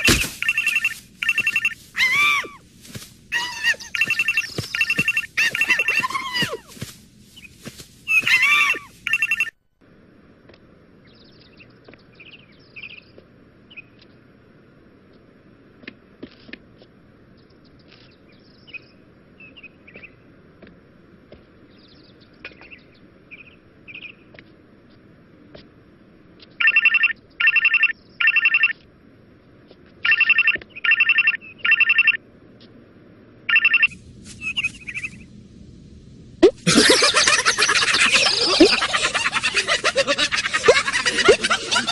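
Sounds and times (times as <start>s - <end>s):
faint high chirps and squeaks: 0.0s - 2.6s, 3.3s - 9.5s, 33.5s - 35.3s
telephone ringtone: 0.4s - 1.8s, 9.1s - 9.6s, 26.6s - 28.7s, 30.0s - 32.2s, 33.5s - 34.0s
low hiss: 32.7s - 41.9s.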